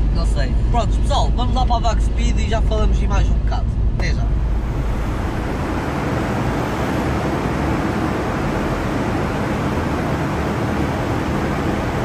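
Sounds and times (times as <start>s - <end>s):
cooling fan rushing: 0.0s - 12.0s
low engine hum: 0.0s - 12.0s.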